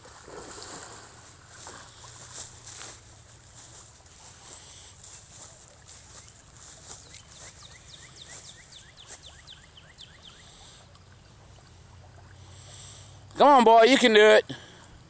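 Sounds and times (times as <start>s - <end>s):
faint high hiss: 0.0s - 15.0s
bird chirping rapidly: 6.9s - 10.8s.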